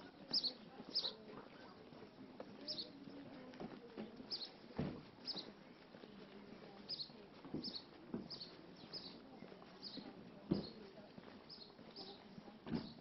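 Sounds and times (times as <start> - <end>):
faint outdoor background: 0.0 - 13.0
small bird chirping: 0.3 - 1.2, 2.6 - 3.0, 4.3 - 4.6, 5.2 - 5.6, 6.9 - 9.2, 11.5 - 12.3.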